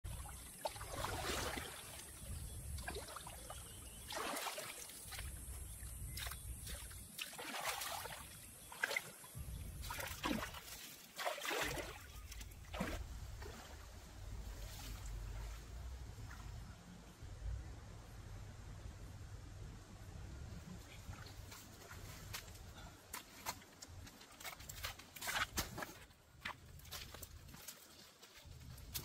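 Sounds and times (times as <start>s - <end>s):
water splashing in a stream: 0.0s - 15.6s.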